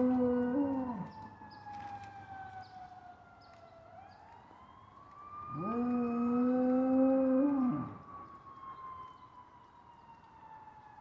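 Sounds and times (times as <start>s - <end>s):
dog howling: 0.0s - 1.2s, 5.5s - 8.0s
fire truck siren wailing: 0.0s - 11.0s.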